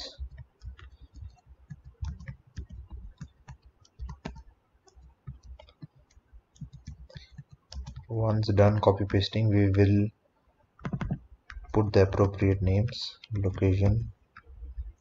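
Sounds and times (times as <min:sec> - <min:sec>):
keyboard keys clicking: 0:00.0 - 0:09.9, 0:10.8 - 0:15.0.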